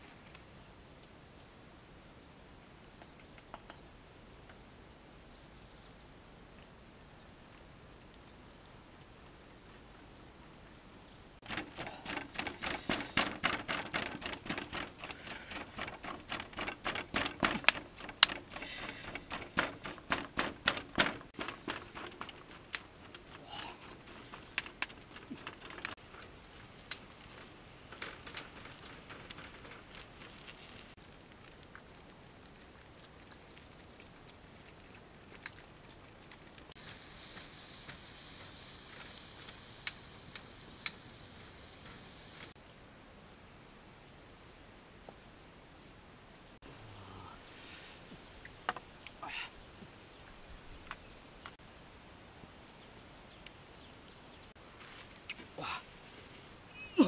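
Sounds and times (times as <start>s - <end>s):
broth boiling with steady hiss: 6.2s - 57.0s
fire crackles and pops: 11.4s - 42.6s, 47.4s - 56.8s.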